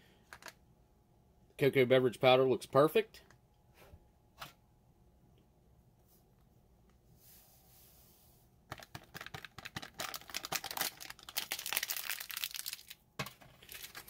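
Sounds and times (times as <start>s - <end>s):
foil packet crinkling: 8.7s - 14.0s.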